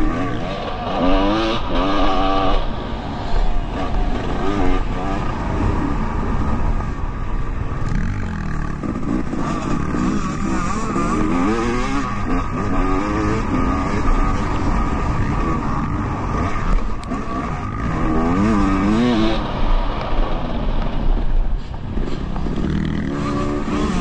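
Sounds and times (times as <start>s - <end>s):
dirt bike engine revving: 0.0s - 6.6s, 7.8s - 19.8s, 21.9s - 24.0s.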